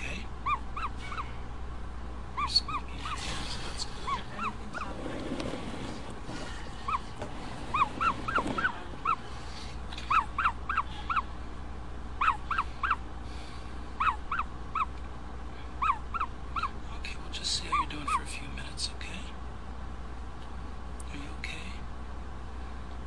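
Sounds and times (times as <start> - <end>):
ostrich chick peeping: 0.0 - 1.6, 2.3 - 5.8, 6.7 - 11.4, 12.1 - 13.2, 13.9 - 15.1, 15.7 - 16.8, 17.4 - 18.3.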